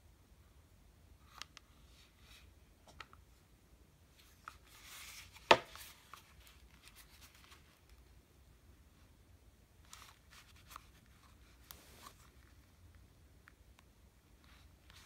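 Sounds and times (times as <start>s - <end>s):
headphones rustling: 4.1s - 8.2s, 9.8s - 13.0s.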